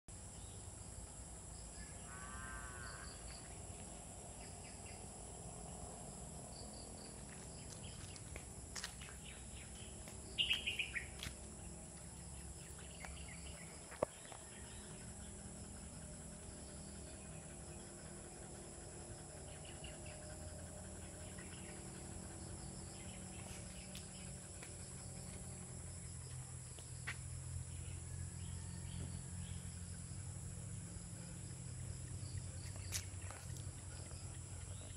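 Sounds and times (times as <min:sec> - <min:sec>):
insects droning: 0:00.1 - 0:34.9
bird calls: 0:07.6 - 0:11.3.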